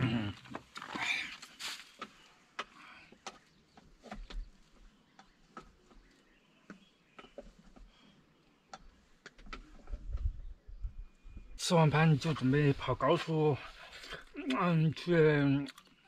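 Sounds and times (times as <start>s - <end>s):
faint clicks and light knocks: 2.0s - 10.4s.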